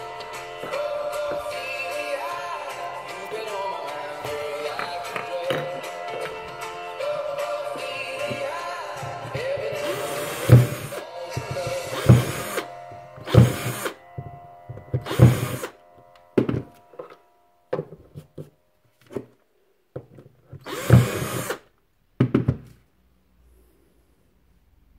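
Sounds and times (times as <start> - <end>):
cordless drill drilling plastic: 9.4 - 11.0, 11.6 - 14.0, 14.8 - 15.8, 20.6 - 21.7.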